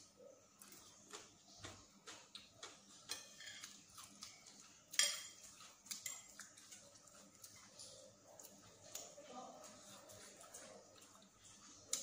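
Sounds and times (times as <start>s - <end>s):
fork and spoon clinking on plate: 3.1s - 6.9s.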